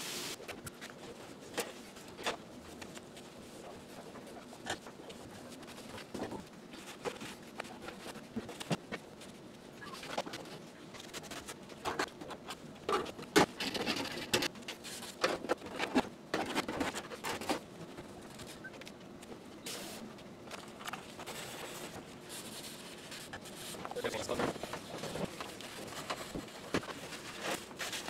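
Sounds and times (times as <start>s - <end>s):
cleaning scrapes and rustles: 20.6s - 28.0s.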